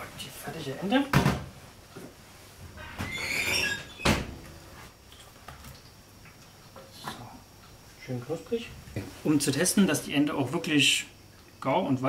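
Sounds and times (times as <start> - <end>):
metal pan scraping and squealing: 2.8 - 4.1.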